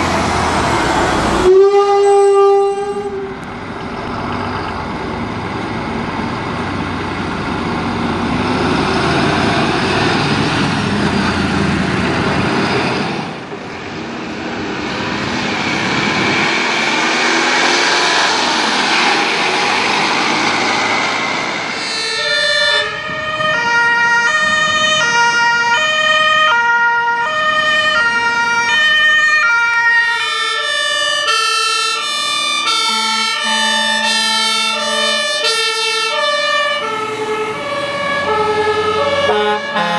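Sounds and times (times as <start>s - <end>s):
fire engine and road noise: 0.0s - 39.9s
two-tone siren: 1.4s - 3.4s, 21.7s - 39.9s.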